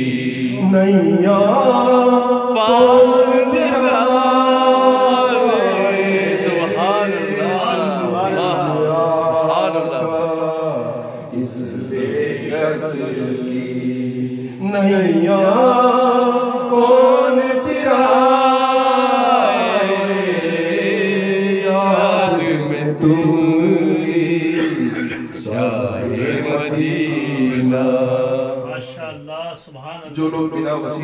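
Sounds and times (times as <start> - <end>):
man singing devotional song: 0.0 - 31.0.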